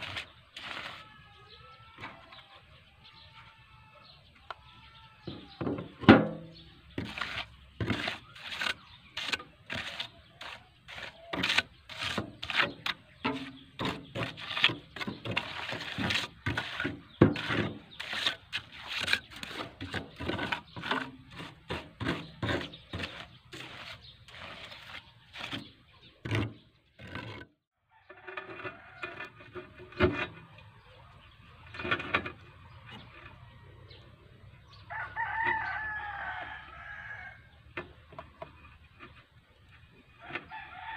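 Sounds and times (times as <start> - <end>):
trowel scraping wet cement: 0.0 - 2.5, 6.1 - 33.4.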